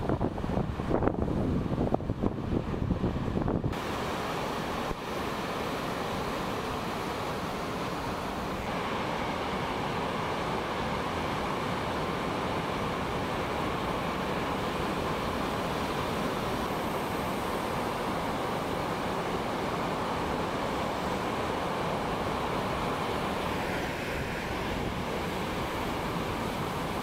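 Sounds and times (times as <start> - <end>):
ocean waves breaking: 1.6 - 27.0.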